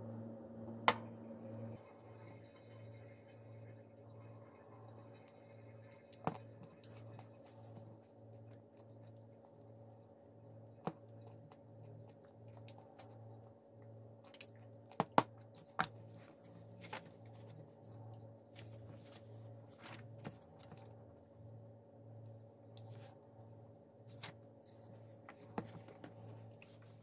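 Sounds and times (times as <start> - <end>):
low throbbing hum: 0.0 - 14.9.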